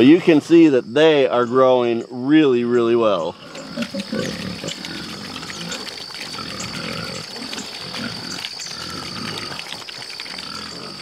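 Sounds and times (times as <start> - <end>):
piglets grunting: 3.2 - 11.0
piglets crunching feed pellets: 3.3 - 11.0.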